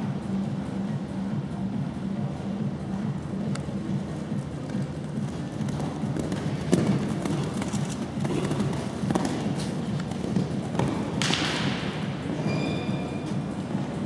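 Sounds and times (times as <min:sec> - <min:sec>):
low hall hum: 0:00.0 - 0:14.0
horse hooves on sand: 0:03.8 - 0:12.2.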